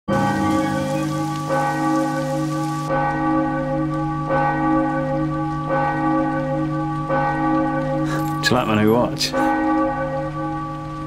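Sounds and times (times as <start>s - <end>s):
steady hiss: 0.1s - 2.9s
deep bell tolling: 0.1s - 10.8s.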